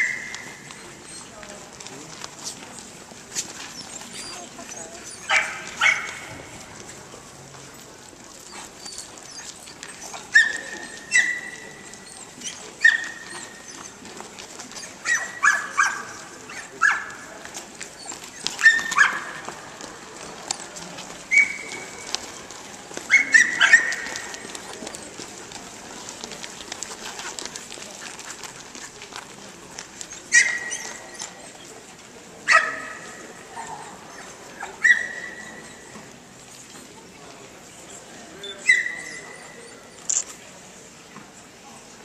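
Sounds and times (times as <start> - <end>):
dogs barking: 5.2 - 6.4, 23.1 - 24.6, 32.5 - 35.6.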